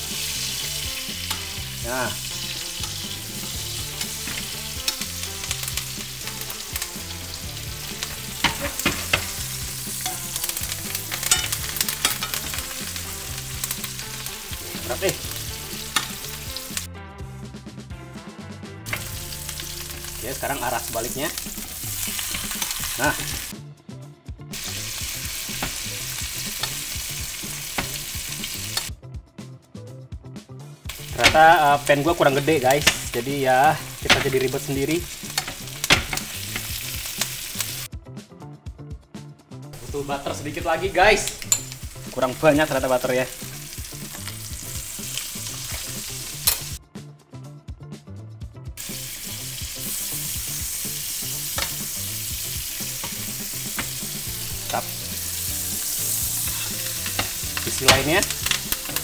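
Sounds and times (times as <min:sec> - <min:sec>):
butter sizzling in frying pan: 0:00.0 - 0:16.9, 0:18.9 - 0:23.5, 0:24.5 - 0:28.9, 0:30.9 - 0:37.9, 0:39.8 - 0:46.8, 0:48.8 - 0:59.0
spoon ticks and spatters: 0:01.2 - 0:01.6, 0:10.0 - 0:12.6, 0:15.8 - 0:16.3, 0:35.1 - 0:36.0, 0:56.4 - 0:59.0
metal spoon clinking on pan: 0:10.0 - 0:10.3, 0:11.2 - 0:12.6, 0:41.2 - 0:41.8.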